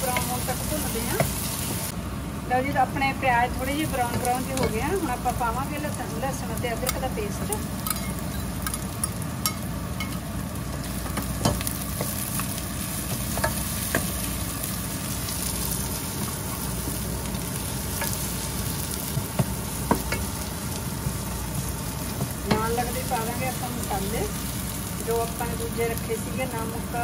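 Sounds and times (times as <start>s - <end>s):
onions sizzling in a pot: 0.0s - 27.0s.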